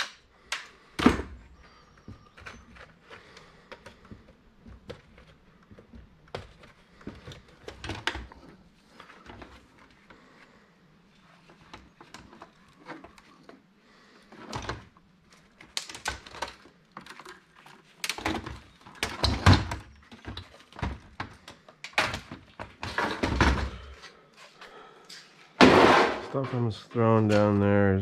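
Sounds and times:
metal and plastic parts clattering: 14.3s - 23.9s.

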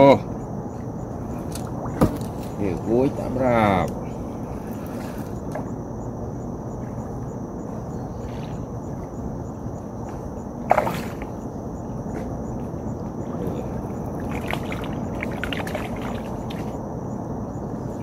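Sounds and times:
low rushing background noise: 0.0s - 18.0s.

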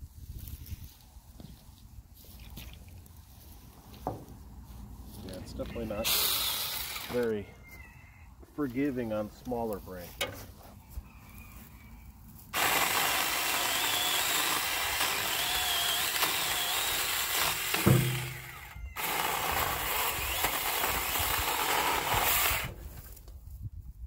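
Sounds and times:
mini chainsaw cutting branches: 6.0s - 7.3s, 12.5s - 23.2s.

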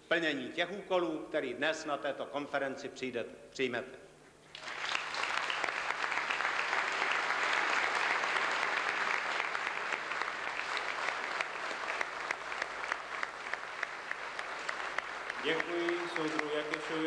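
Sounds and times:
large audience applauding: 4.5s - 17.0s.

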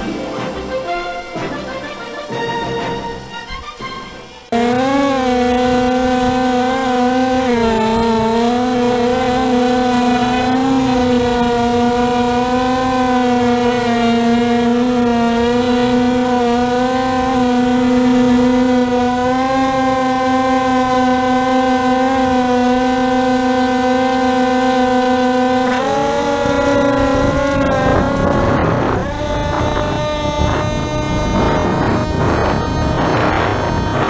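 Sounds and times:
model plane propellers whining: 0.0s - 34.0s.

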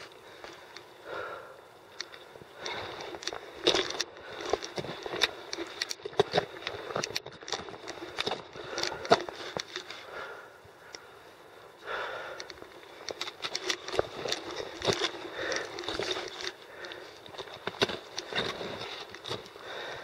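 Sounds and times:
person breathing: 0.2s - 3.4s, 8.6s - 12.7s, 14.8s - 17.3s, 19.6s - 20.0s
footsteps on rocky ground: 13.0s - 20.0s.

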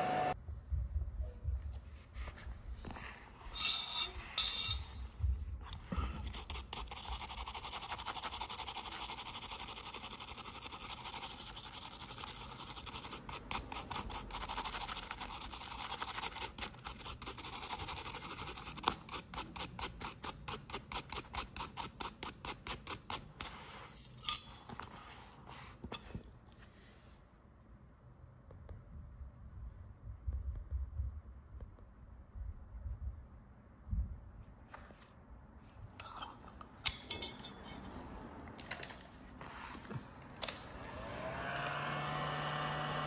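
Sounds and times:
rhythmic hand scraping: 5.8s - 24.3s.

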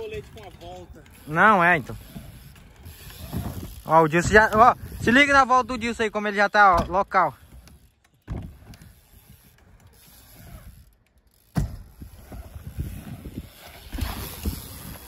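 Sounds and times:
bike tyres rumbling on wood: 1.9s - 5.1s, 6.6s - 15.0s.

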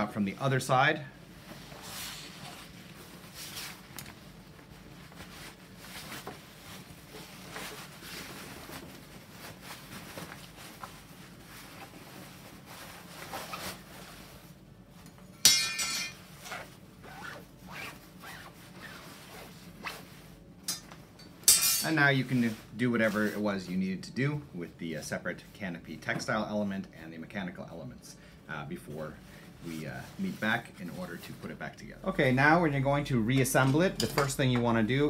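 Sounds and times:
fabric rustling: 1.2s - 15.0s, 16.2s - 20.9s, 29.1s - 32.7s.

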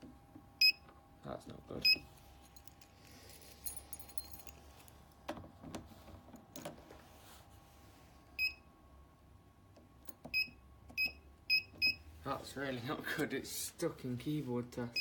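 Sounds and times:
high-pitched alarm panel beep: 0.6s - 0.8s, 10.3s - 12.0s.

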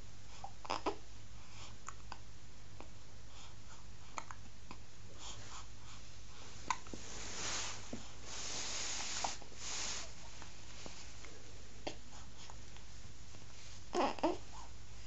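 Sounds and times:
soft rustling of fabric: 5.2s - 15.0s.

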